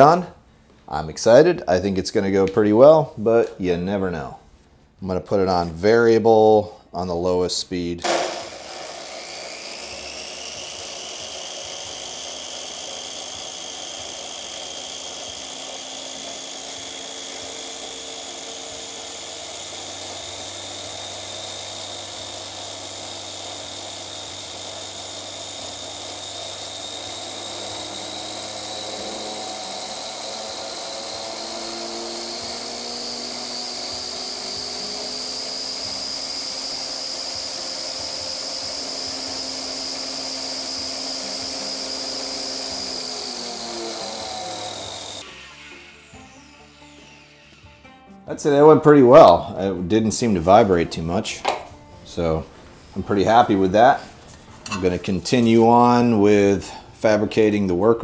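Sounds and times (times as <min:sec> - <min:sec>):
angle grinder high whine: 0:08.0 - 0:52.5.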